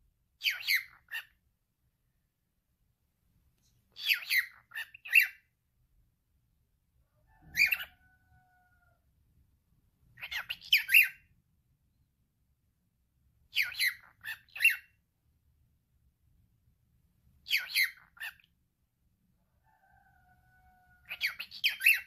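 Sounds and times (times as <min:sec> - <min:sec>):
cockatiel talking: 0:00.4 - 0:01.4, 0:03.9 - 0:05.5, 0:07.5 - 0:08.2, 0:10.2 - 0:11.2, 0:13.5 - 0:14.9, 0:17.4 - 0:18.5, 0:20.7 - 0:22.0.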